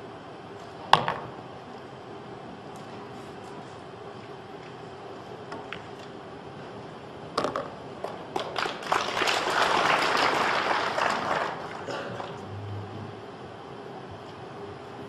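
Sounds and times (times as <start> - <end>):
cue striking ball: 1.0 - 1.3
pool balls clicking: 7.4 - 8.8
audience applause: 8.4 - 12.6.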